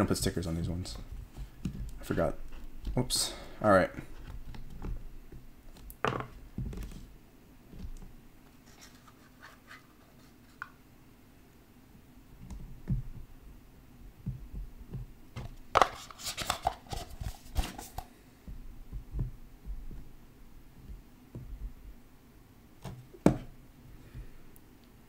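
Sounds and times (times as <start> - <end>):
cards scraping and rustling: 8.5 - 10.8, 15.4 - 18.1.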